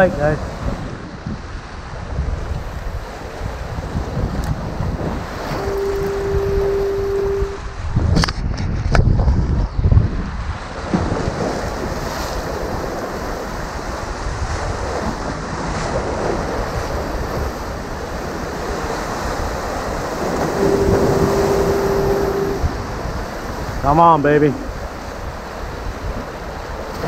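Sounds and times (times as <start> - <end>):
wind buffeting microphone: 0.0 - 23.8
surf splashing against rocks: 2.6 - 7.6, 10.7 - 27.0
steady tone: 5.4 - 7.6, 20.2 - 22.8.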